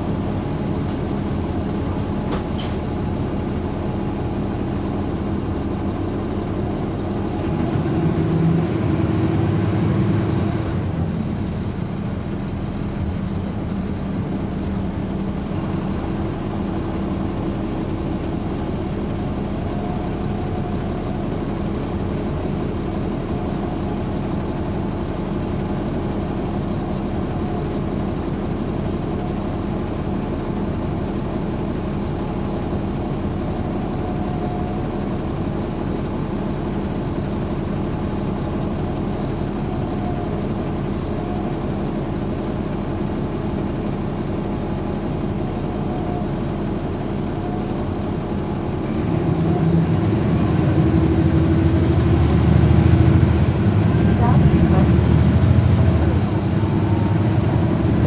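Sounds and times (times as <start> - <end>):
bus diesel engine running: 0.0 - 58.0.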